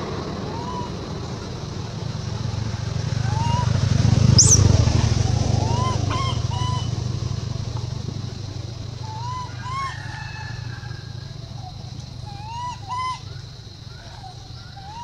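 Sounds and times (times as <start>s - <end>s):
rising and falling animal calls: 0.0s - 2.5s, 3.1s - 7.3s, 9.0s - 15.0s
low engine rumble: 0.0s - 15.0s.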